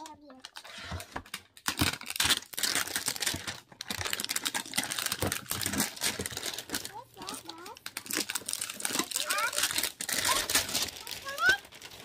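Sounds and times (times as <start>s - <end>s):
plastic shrink wrap crinkling: 0.0s - 12.0s.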